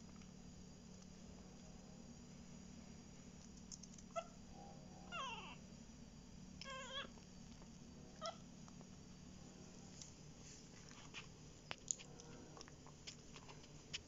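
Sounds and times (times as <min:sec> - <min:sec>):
puppy whining: 0:05.0 - 0:05.6.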